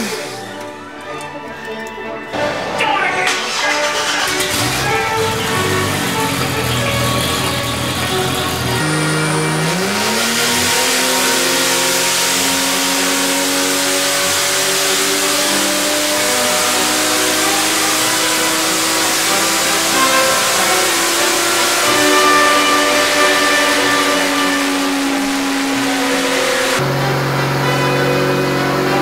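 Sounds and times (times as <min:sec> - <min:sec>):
engine revving under load: 0:02.4 - 0:29.0.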